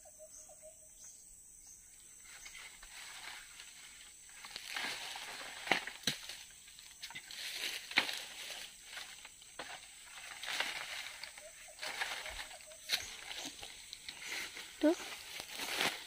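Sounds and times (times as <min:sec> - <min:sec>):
leafy branches rustling: 0:02.2 - 0:16.0
twigs snapping: 0:04.4 - 0:08.4.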